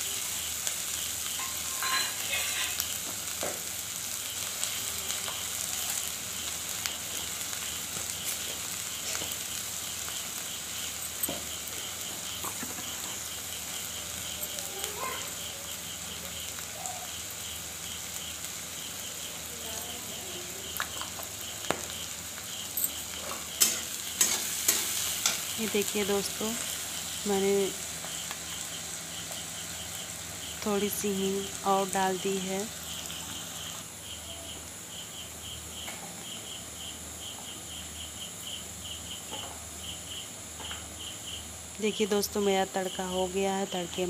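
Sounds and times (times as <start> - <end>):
crickets chirping: 0.0 - 44.0
onions sizzling in oil: 0.0 - 44.0
steady high hiss: 0.0 - 44.0.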